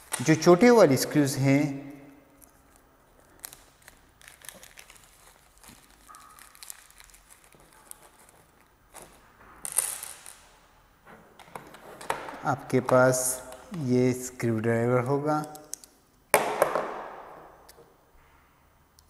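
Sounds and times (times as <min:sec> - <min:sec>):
plastic bag crinkling: 0:02.4 - 0:10.4.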